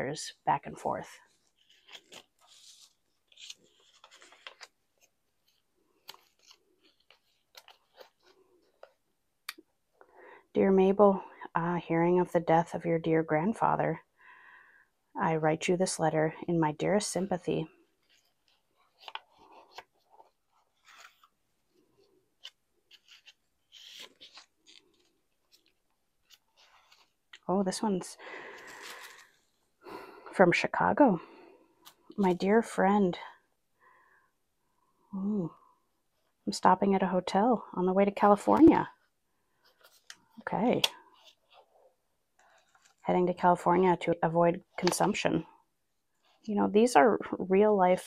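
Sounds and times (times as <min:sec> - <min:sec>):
paper rustling and crinkling: 0:01.2 - 0:09.0, 0:17.8 - 0:27.5, 0:28.4 - 0:29.6, 0:41.0 - 0:43.1.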